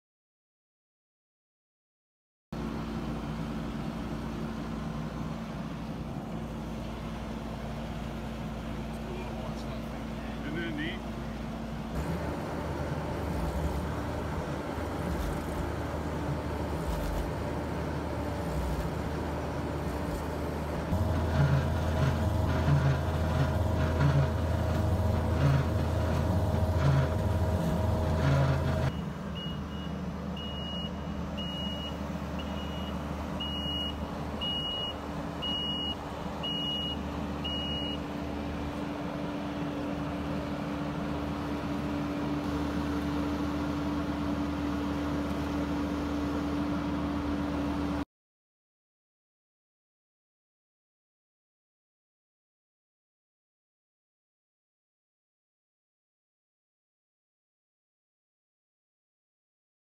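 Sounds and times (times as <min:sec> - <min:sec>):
diesel engine running: 0:02.6 - 0:48.0
auger boring into clay: 0:12.0 - 0:28.9
backup alarm beeping: 0:28.9 - 0:38.0.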